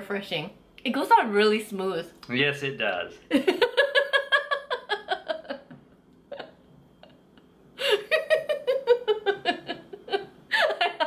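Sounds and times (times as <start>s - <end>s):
woman laughing: 3.3s - 11.0s.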